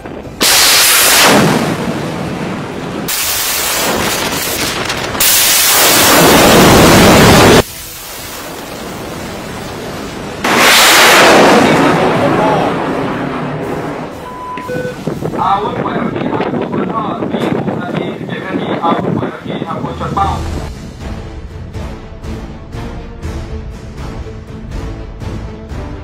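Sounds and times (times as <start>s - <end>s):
rocket booster rushing roar: 0.0s - 14.2s.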